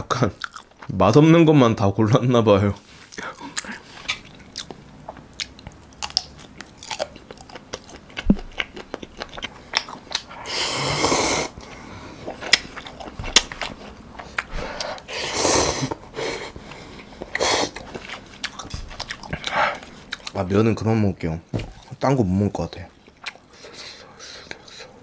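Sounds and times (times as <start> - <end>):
biting and chewing: 3.5 - 10.4, 12.2 - 15.0, 17.0 - 20.4
slurping noodles: 10.4 - 11.6, 15.1 - 16.4.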